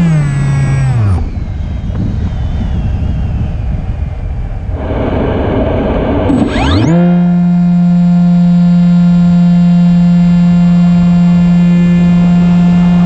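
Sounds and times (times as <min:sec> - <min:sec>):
electric motor and propeller: 0:00.0 - 0:13.0
wind rushing: 0:01.0 - 0:06.9.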